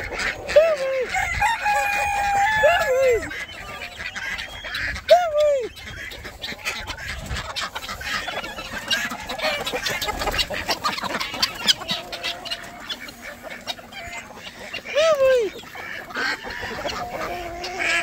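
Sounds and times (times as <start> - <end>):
chickens clucking and squawking: 0.0 - 18.0
loud falling chicken call: 1.1 - 4.0.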